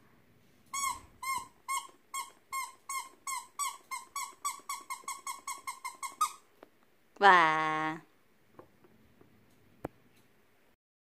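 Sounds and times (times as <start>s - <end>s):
short high squeaks: 0.7s - 6.4s.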